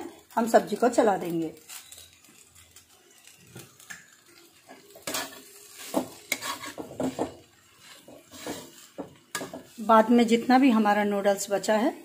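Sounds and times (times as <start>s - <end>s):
metal spatula scraping a wok: 1.5s - 3.4s, 4.2s - 10.6s.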